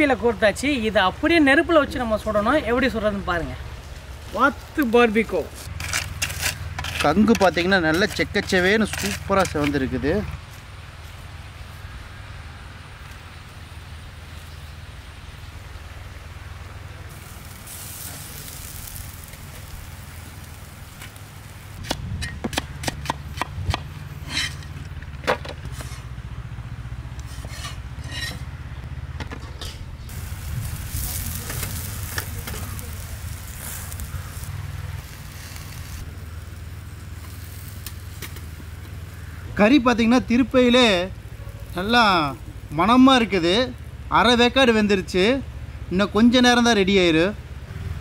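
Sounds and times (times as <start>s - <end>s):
meat sizzling over embers: 2.0s - 21.9s, 30.1s - 45.2s
sharp crackles: 3.8s - 11.9s, 13.0s - 21.9s, 30.1s - 44.6s
steady low rumble: 25.7s - 39.6s.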